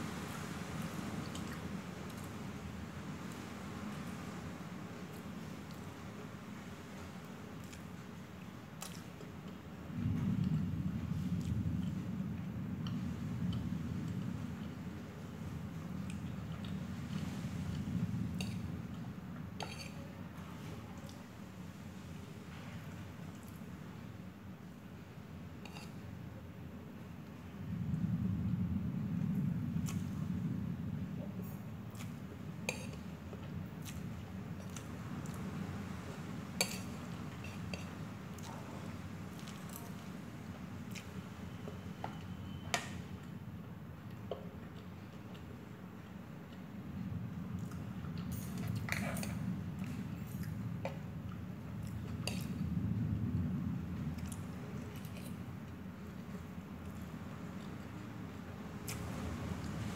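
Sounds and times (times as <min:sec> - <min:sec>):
steady low hum: 0:00.0 - 0:59.9
fork clinking on plate: 0:19.6 - 0:20.0
low rumble: 0:27.5 - 0:32.5
person chewing noodles: 0:31.9 - 0:35.4, 0:39.3 - 0:40.1, 0:40.8 - 0:41.8, 0:54.1 - 0:58.0.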